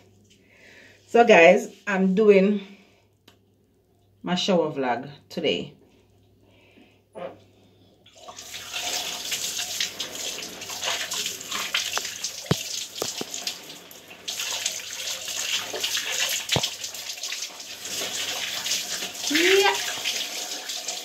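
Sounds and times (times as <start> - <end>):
shower water splashing: 8.1 - 21.0.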